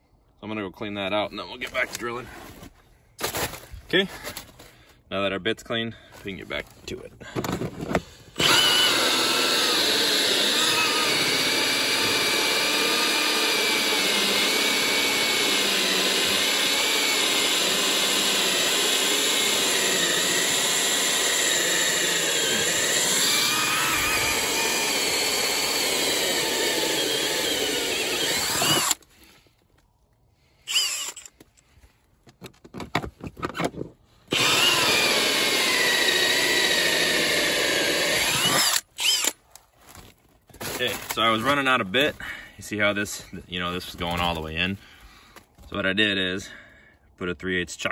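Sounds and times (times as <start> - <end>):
cordless drill cutting wood: 8.3 - 29.1, 30.6 - 31.4, 34.3 - 39.4.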